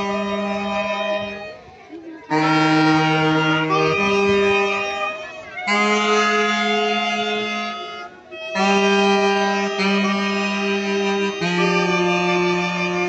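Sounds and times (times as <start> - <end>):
saxophones playing slow tune: 0.0 - 13.0.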